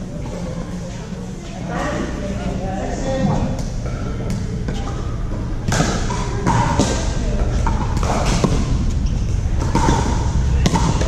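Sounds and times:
ball bouncing on court: 5.6 - 11.0
paddles hitting plastic ball: 7.6 - 8.8, 9.5 - 11.0.

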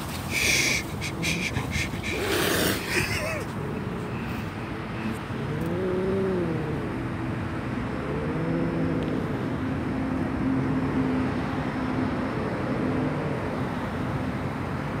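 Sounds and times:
background traffic noise: 0.0 - 15.0
cat growling: 0.7 - 4.2, 5.4 - 7.1, 8.0 - 9.3.

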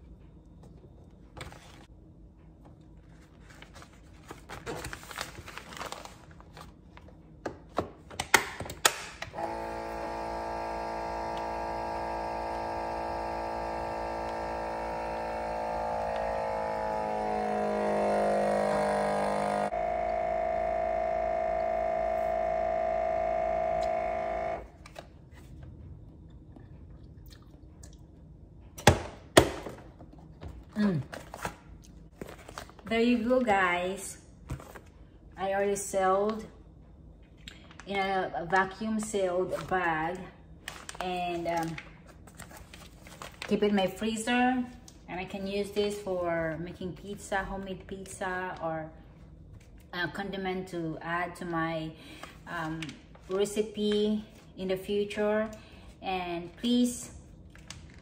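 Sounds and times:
vacuum sealer pump running: 9.3 - 24.8.

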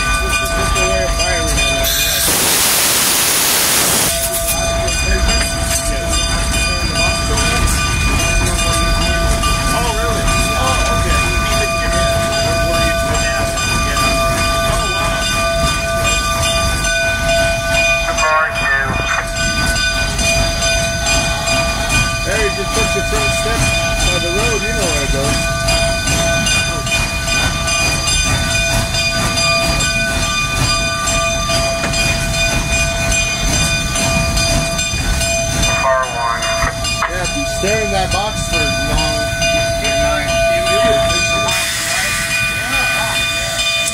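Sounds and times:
steam locomotive rumbling: 0.0 - 43.9
steady high whine: 1.8 - 5.5.

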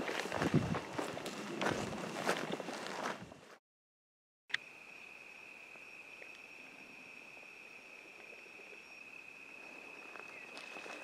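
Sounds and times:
cricket trilling: 4.5 - 11.0.

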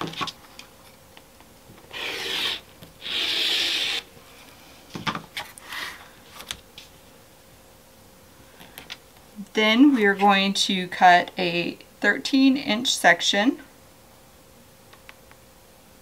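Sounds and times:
rotary cutter slicing fabric: 1.9 - 4.1.

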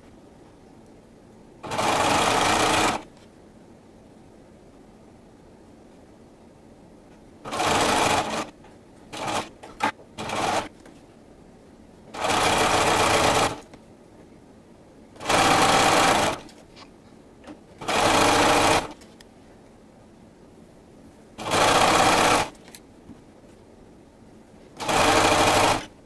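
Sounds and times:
sewing machine stitching: 1.6 - 3.1, 7.5 - 10.7, 12.1 - 13.7, 15.2 - 16.5, 17.8 - 19.0, 21.4 - 22.6, 24.8 - 26.0.

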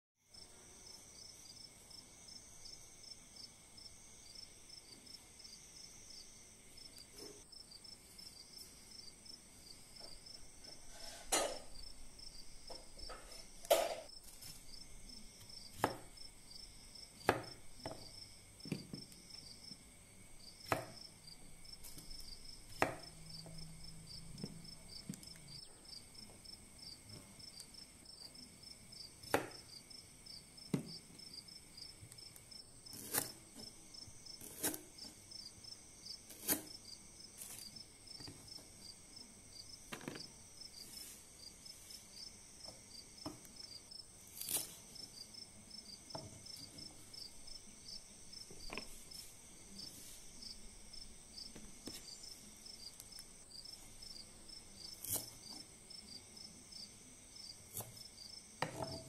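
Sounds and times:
crickets chirping: 0.3 - 59.0
knife on wooden chopping board: 10.7 - 11.7, 32.9 - 33.7, 34.4 - 34.9, 36.3 - 36.7, 44.4 - 44.8.

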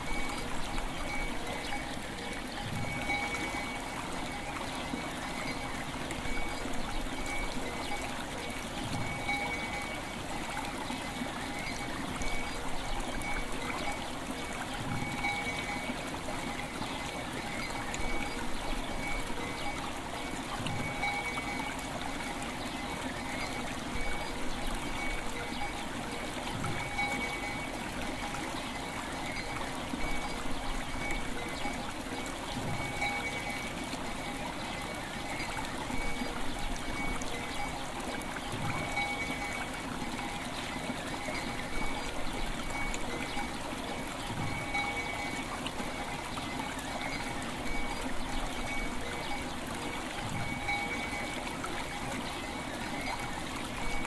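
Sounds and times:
soft ringing bell tones: 0.0 - 12.6, 14.9 - 18.4, 19.0 - 28.3, 32.6 - 37.8, 38.7 - 43.5, 44.4 - 46.0, 50.3 - 54.0
river water flowing: 0.0 - 54.0.

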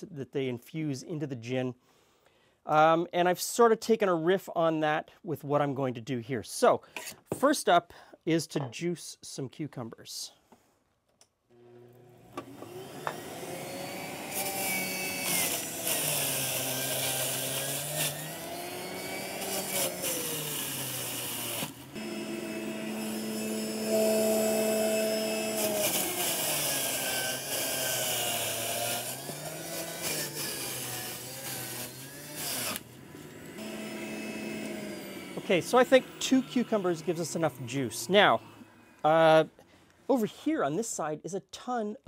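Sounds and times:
electric juicer grinding: 11.6 - 39.1.

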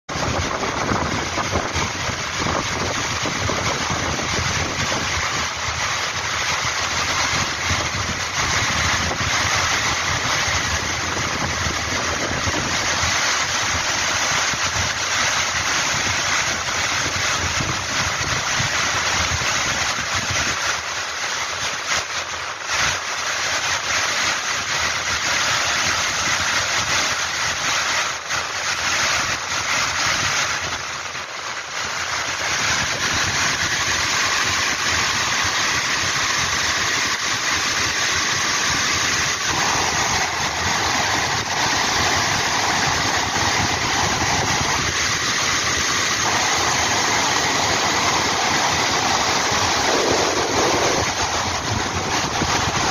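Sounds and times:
waterfall rushing over rocks: 0.1 - 52.9.

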